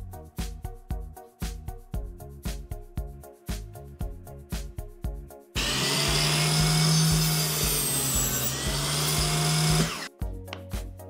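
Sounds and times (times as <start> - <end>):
background music with a beat: 0.0 - 11.0
table saw cutting plywood: 5.6 - 10.1.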